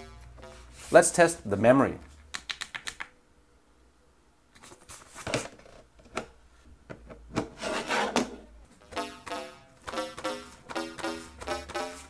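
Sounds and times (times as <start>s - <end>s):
cardboard casing rubbed and scraped: 7.6s - 8.3s.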